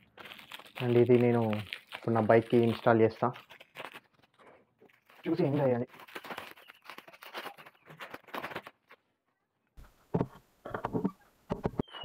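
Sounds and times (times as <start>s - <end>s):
plastic wrapping crinkling and tearing: 0.0s - 9.1s.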